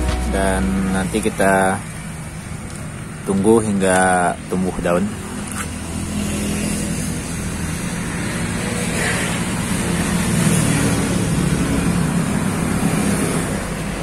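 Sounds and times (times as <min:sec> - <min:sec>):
vehicle engine humming: 0:00.0 - 0:06.1
traffic noise: 0:00.0 - 0:14.0.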